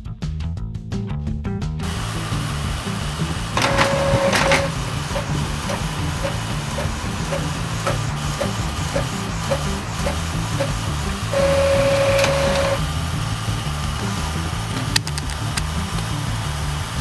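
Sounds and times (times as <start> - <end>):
background music with steady beat: 0.0 - 17.0
printer mechanism ticking: 3.6 - 12.8
printer motor whir: 3.6 - 12.8.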